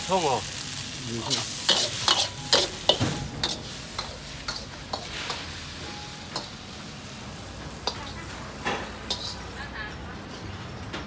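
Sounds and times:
food sizzling: 0.0s - 9.8s
spatula clanking on a wok: 1.3s - 7.0s, 7.6s - 9.9s.

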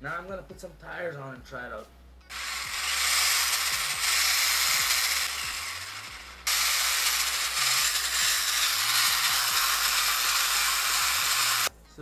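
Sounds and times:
electric motor and gears whirring: 2.3s - 11.7s.

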